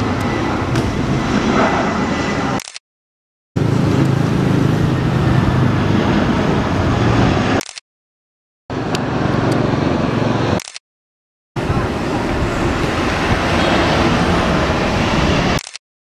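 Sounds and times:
jet engines of airliner passing: 0.0s - 2.6s, 3.6s - 7.6s, 8.7s - 10.6s, 11.6s - 15.7s.

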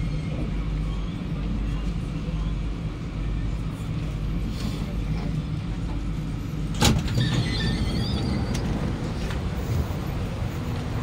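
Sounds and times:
train low hum: 0.0s - 11.0s
train doors sliding open: 4.5s - 11.0s.

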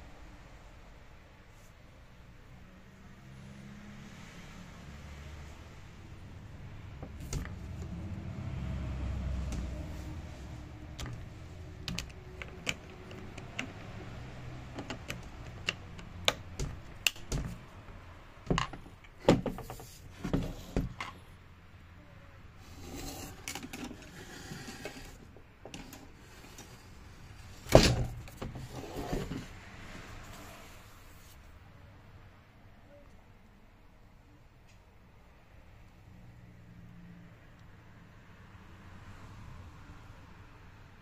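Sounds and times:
plastic housing clicks and knocks: 11.8s - 13.9s, 14.7s - 17.6s, 18.4s - 19.8s.

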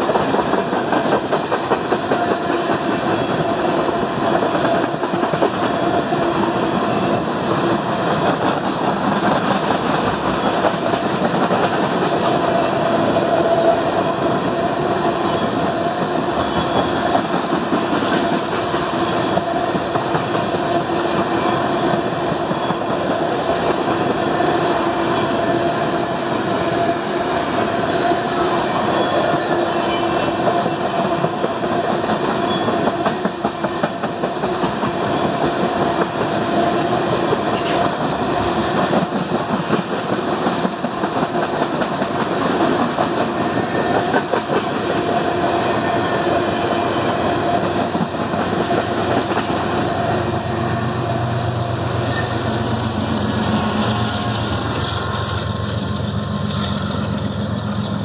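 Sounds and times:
diesel locomotive engine hum: 0.0s - 58.0s
train wheels clattering on rails: 0.0s - 58.0s.

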